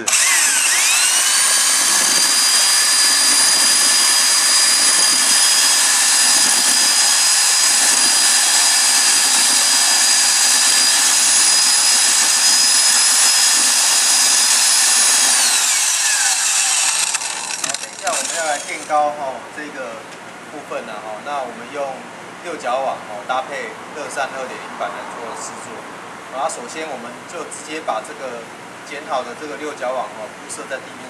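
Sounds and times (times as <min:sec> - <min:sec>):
electric drill mixing mortar: 0:00.0 - 0:19.0.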